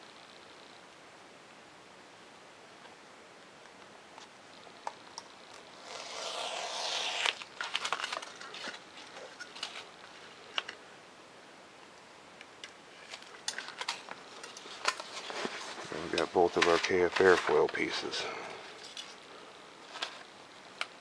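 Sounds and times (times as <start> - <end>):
knife slicing through foam: 5.8 - 7.4.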